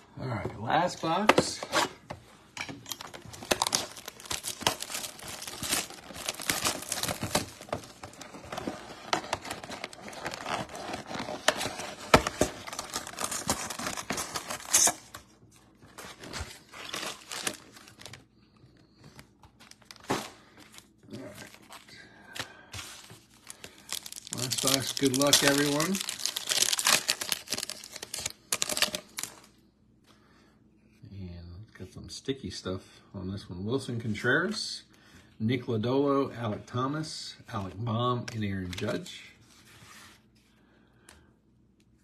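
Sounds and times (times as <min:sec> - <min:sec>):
packaging tearing and crinkling: 0:02.9 - 0:15.2, 0:15.9 - 0:18.2, 0:22.8 - 0:29.5.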